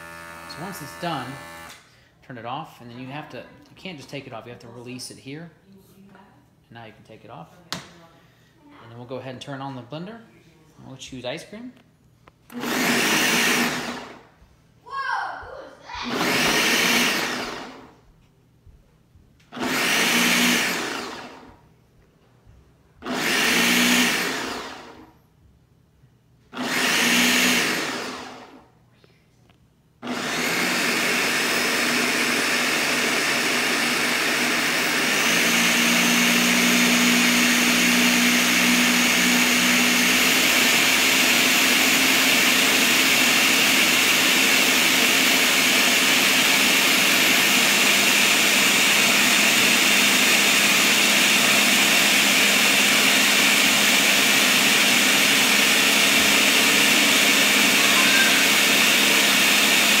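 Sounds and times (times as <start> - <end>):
blender motor running: 0.0 - 1.9, 12.5 - 14.2, 16.0 - 17.9, 19.5 - 21.5, 23.0 - 25.1, 26.5 - 28.6, 30.0 - 60.0.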